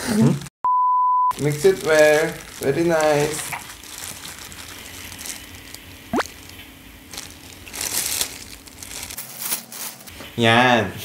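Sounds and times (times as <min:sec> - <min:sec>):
meat mixing rustles: 0:01.3 - 0:10.1.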